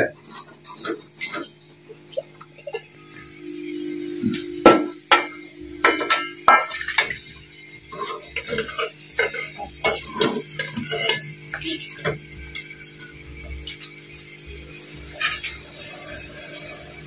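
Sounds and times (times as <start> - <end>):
low hum: 3.0 - 7.1
metal ladle scraping bowl and pot: 7.9 - 12.2.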